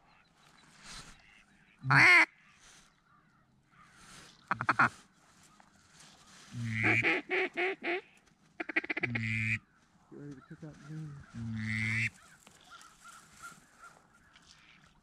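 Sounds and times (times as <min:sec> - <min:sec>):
duck call quacks: 0:01.2 - 0:02.3, 0:04.5 - 0:04.9, 0:06.6 - 0:09.6, 0:10.9 - 0:12.1.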